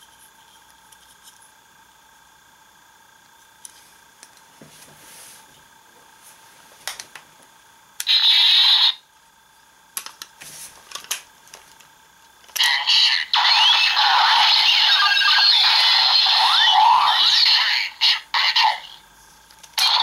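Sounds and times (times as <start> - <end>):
toy electronic sound effects: 8.0 - 9.0, 12.6 - 19.0, 19.8 - 20.0.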